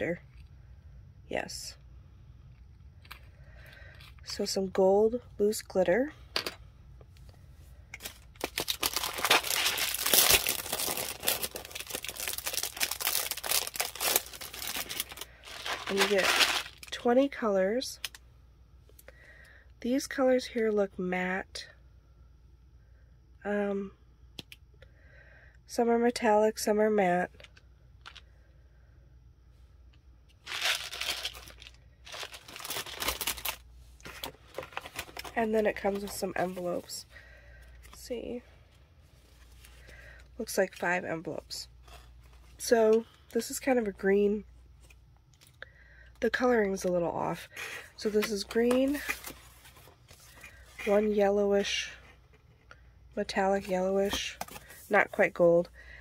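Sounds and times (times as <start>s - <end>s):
plastic wrapping crinkling: 8.0s - 17.0s, 30.4s - 36.9s.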